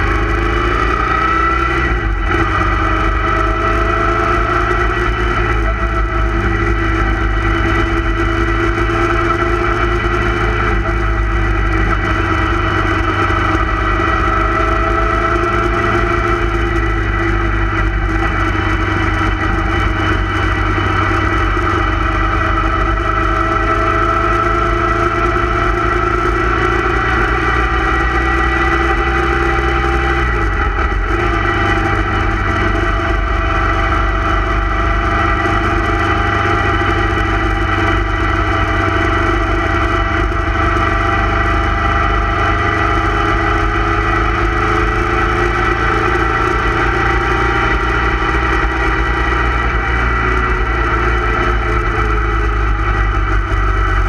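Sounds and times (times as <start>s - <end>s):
motorcycle engine running: 0.0s - 54.0s.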